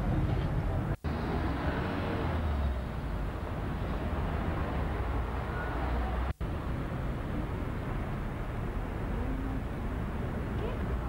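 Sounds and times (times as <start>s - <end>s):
street traffic: 0.0s - 11.0s.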